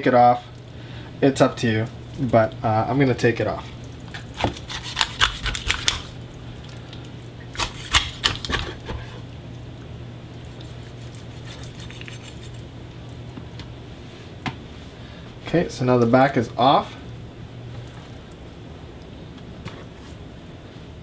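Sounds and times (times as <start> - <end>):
knife crunching through chicken bones: 4.2 - 6.1, 7.6 - 8.9, 10.7 - 12.6.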